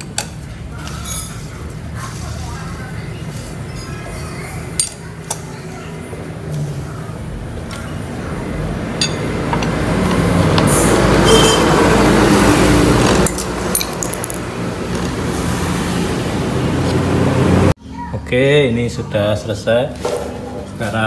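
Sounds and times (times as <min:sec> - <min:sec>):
metal tools clinking: 0:09.0 - 0:10.3, 0:13.1 - 0:14.4.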